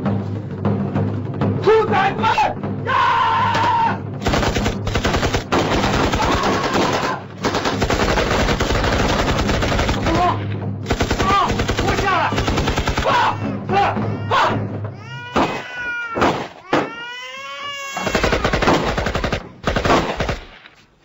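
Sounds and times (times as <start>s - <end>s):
heavy rapid gunfire: 4.2s - 13.4s, 18.0s - 20.6s
person shouting: 6.2s - 7.2s, 13.0s - 14.7s.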